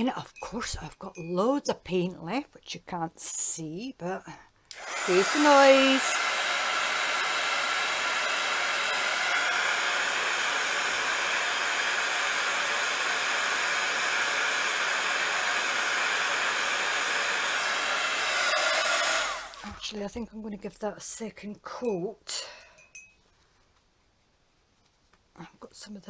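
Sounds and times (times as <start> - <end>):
hot-air dryer blowing: 4.7 - 19.8.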